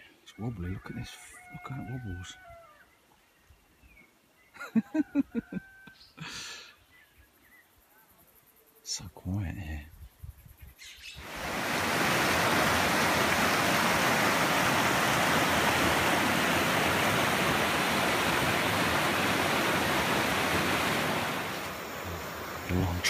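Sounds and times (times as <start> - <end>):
water rushing over rocks: 11.2 - 23.0.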